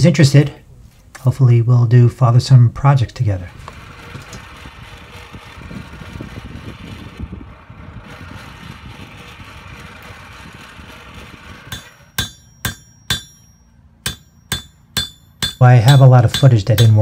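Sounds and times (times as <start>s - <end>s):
steady rushing noise: 2.9s - 17.0s
hammer striking anvil: 11.7s - 17.0s.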